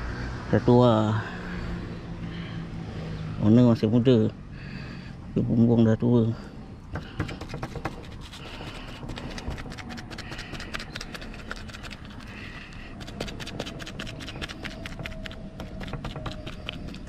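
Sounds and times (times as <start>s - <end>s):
paintbrush scrubbing strokes: 7.2s - 17.0s.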